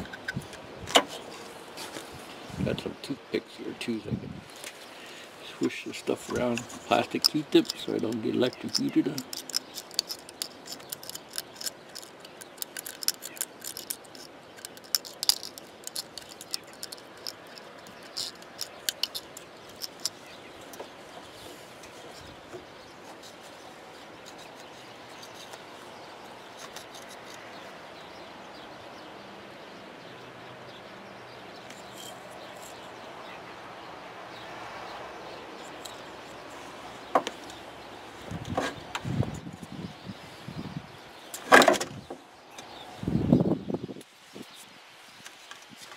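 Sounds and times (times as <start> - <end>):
small scratches and clicks: 6.2 - 27.7.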